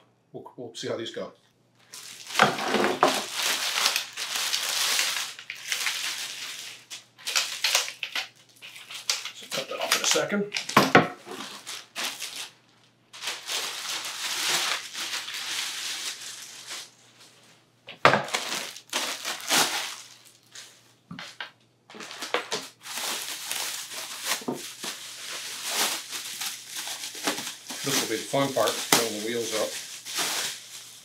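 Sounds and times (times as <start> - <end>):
plastic packaging crinkling: 1.8 - 31.0.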